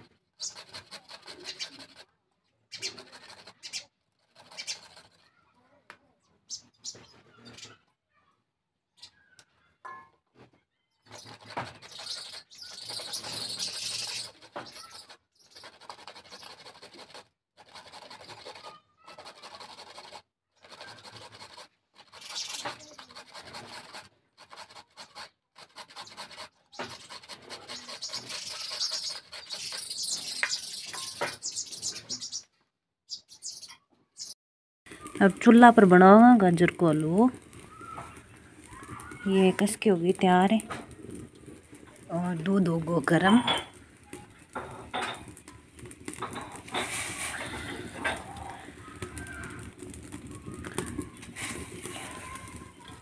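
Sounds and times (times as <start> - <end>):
carrots rasping on metal grater: 0.4 - 2.1, 2.7 - 5.4, 11.0 - 30.2.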